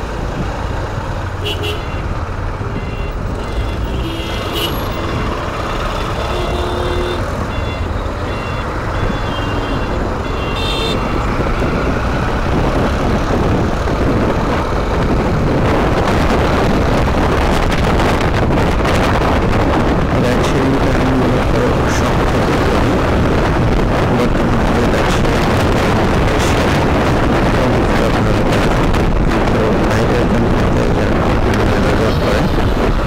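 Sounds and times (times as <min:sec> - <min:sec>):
wind rushing over microphone: 0:02.0 - 0:33.0.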